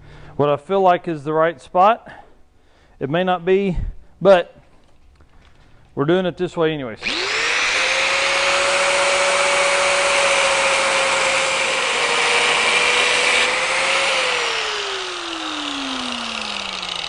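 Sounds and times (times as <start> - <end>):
angle grinder cutting steel: 7.0 - 17.0
grinder spinning down: 7.0 - 17.0.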